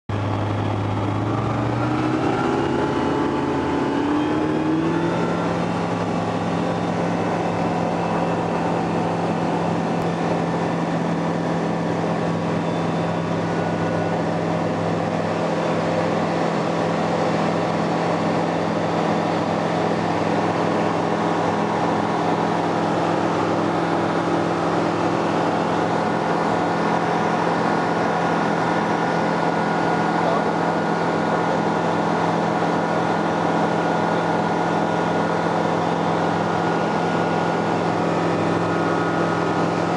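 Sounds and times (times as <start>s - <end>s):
propeller aircraft engine: 0.1s - 39.9s.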